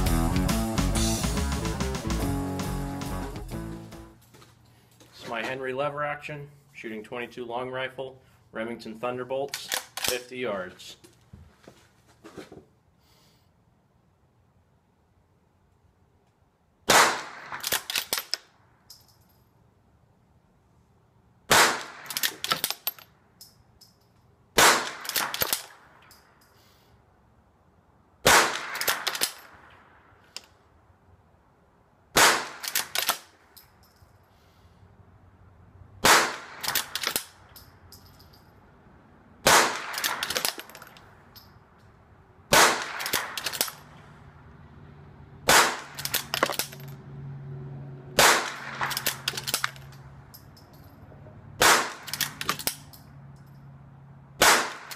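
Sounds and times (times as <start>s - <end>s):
rifle lever metallic clacks: 9.5s - 10.2s, 22.1s - 23.9s, 52.0s - 53.0s
rifle shots: 16.9s - 18.3s, 21.5s - 22.9s, 24.6s - 25.9s, 28.2s - 29.6s, 32.2s - 33.3s, 36.0s - 37.4s, 39.4s - 40.7s, 42.5s - 43.8s, 45.5s - 46.8s, 48.2s - 49.8s, 51.6s - 52.7s, 54.4s - 54.9s.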